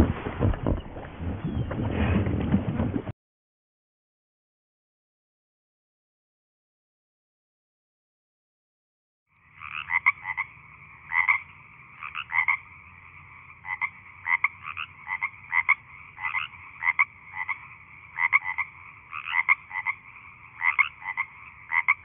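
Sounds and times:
frog chorus: 0:09.3 - 0:22.0
frogs clucking calls: 0:09.3 - 0:22.0.

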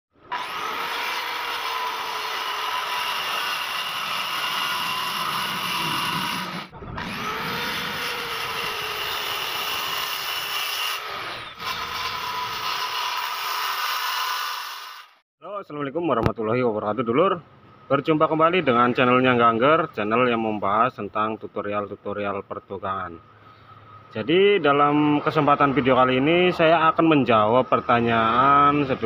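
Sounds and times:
circular saw cutting wood: 0:00.2 - 0:15.2.

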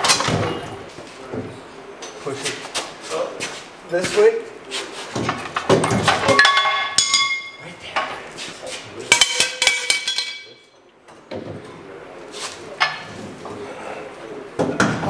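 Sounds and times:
steel suspension parts clanking: 0:05.2 - 0:08.4
sharp ringing metal strikes: 0:06.3 - 0:07.6.

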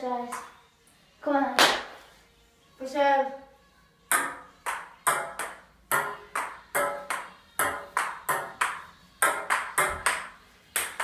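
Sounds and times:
table tennis ball rally: 0:04.1 - 0:11.0.

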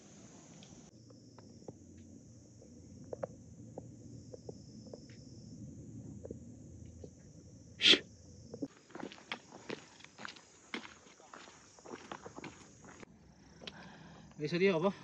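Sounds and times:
faint low rumble: 0:00.5 - 0:08.7.

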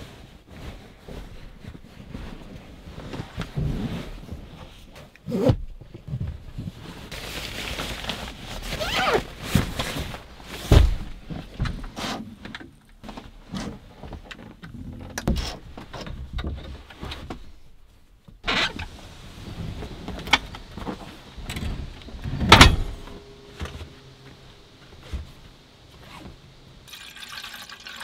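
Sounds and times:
knocks clicks and thuds: 0:09.5 - 0:17.6
heavy thump: 0:10.7 - 0:11.8, 0:21.5 - 0:26.4.

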